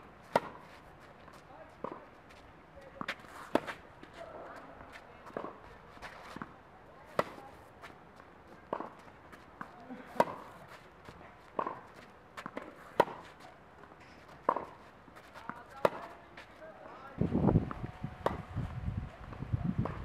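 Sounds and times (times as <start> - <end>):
tennis ball struck with racket: 3.0 - 3.8, 7.1 - 7.5, 10.1 - 10.6, 11.5 - 13.4, 14.4 - 14.8, 15.4 - 16.2, 17.7 - 18.4.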